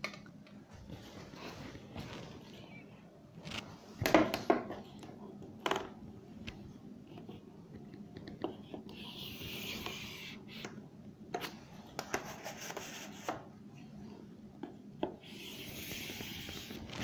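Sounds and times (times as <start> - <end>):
pen scratching on paper: 8.6 - 10.4, 15.2 - 17.0.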